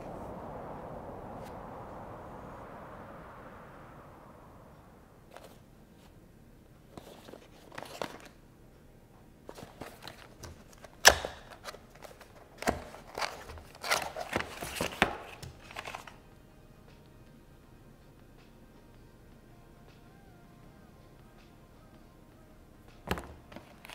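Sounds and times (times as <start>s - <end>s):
cardboard scraping: 9.5s - 16.2s
sharp cardboard snap: 11.0s - 11.7s.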